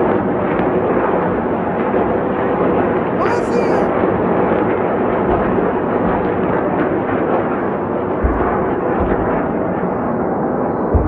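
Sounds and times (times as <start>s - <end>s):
constant distant rumbling: 0.0s - 11.0s
deep explosion thuds: 3.9s - 11.0s.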